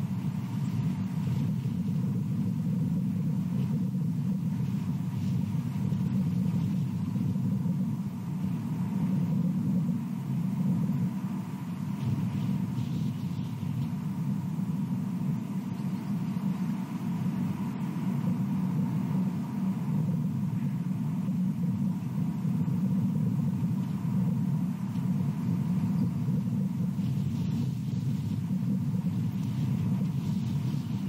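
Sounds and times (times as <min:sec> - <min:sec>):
faint high hum: 0:00.0 - 0:31.0
low outdoor rumble: 0:00.0 - 0:31.0.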